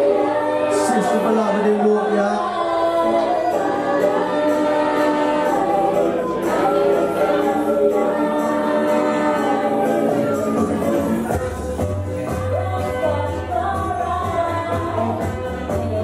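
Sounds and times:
reggae music over sound system: 0.0 - 16.0
voices singing harmonies: 0.0 - 16.0
bass line: 9.2 - 16.0.

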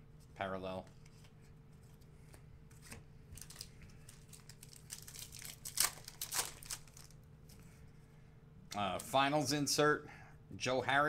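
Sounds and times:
foil wrapper crinkling and tearing: 3.4 - 7.2.

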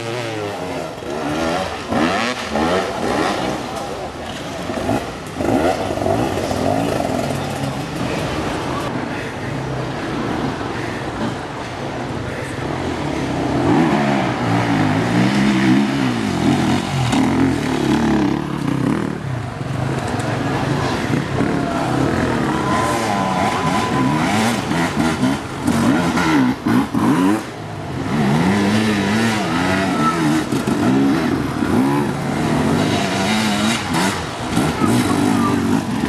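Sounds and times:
dirt bike engines revving: 0.0 - 36.0.

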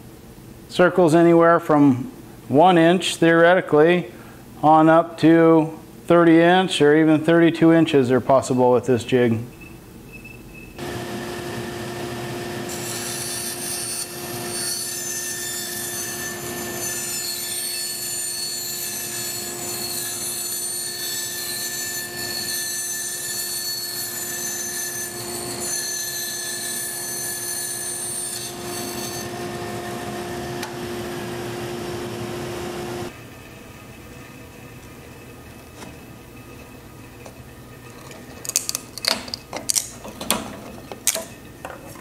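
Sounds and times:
bandsaw motor hum: 10.8 - 14.5, 27.2 - 33.2.

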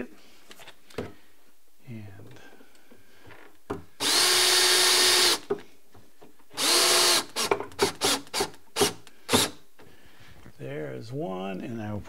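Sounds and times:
cordless drill driving screw: 4.0 - 5.5, 6.6 - 9.6.

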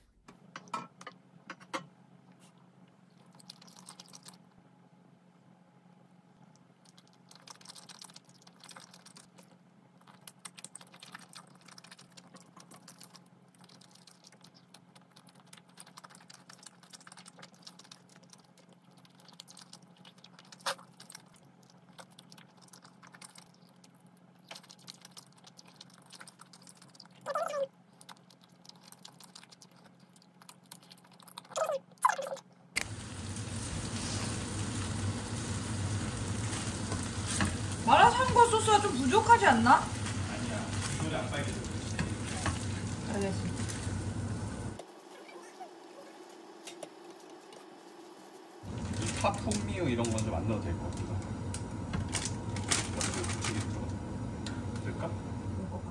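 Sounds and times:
close-up chewing: 2.3 - 4.6, 6.4 - 38.3
wooden spatula stir-frying: 32.8 - 50.3
noodles and meat sizzling in a pan: 32.8 - 50.4.

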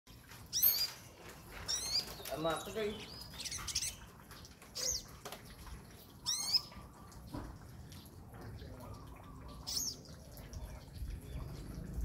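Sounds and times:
bird chirping: 0.5 - 5.2, 6.1 - 7.3, 8.6 - 12.0.

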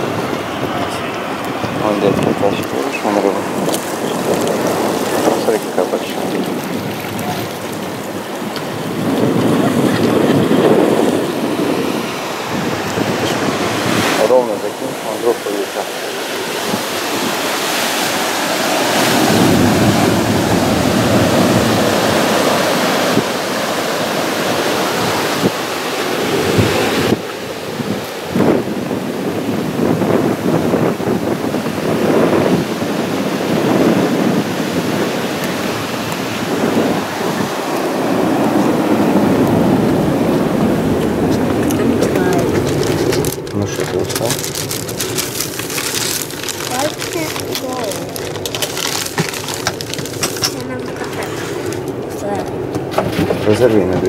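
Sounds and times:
ocean surf: 0.0 - 54.0
wind buffeting microphone: 0.0 - 54.0.

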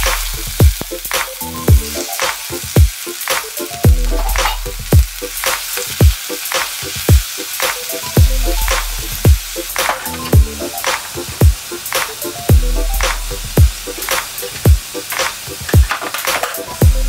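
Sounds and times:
background music with kick drum: 0.0 - 17.0
greens sizzling in oil: 0.0 - 17.0
metal tongs turning food: 2.0 - 7.6, 9.7 - 12.2, 13.9 - 16.8.

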